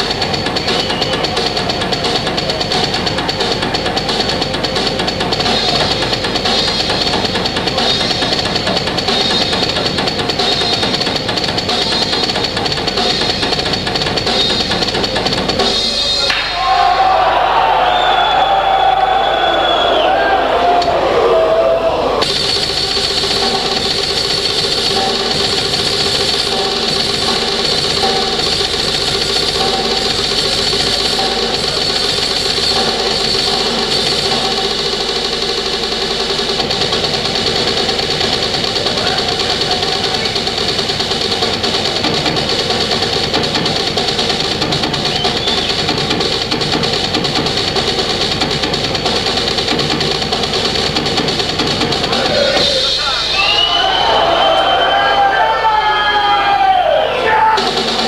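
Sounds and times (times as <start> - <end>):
drum kit solo: 0.0 - 21.2, 22.2 - 58.0
cymbals wash: 22.2 - 56.7.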